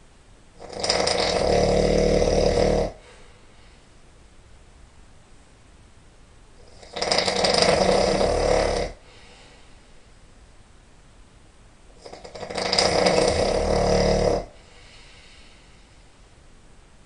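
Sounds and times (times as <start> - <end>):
man snoring loudly: 0.6 - 3.0, 6.6 - 9.2, 12.0 - 14.6
quiet breathing: 2.3 - 4.1, 7.9 - 10.4, 12.9 - 16.4.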